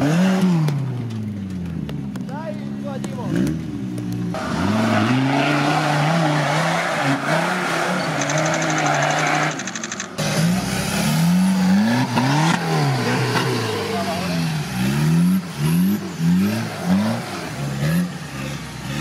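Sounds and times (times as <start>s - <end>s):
engine revving hard: 4.4s - 19.0s
tyres spinning in mud: 5.0s - 10.2s.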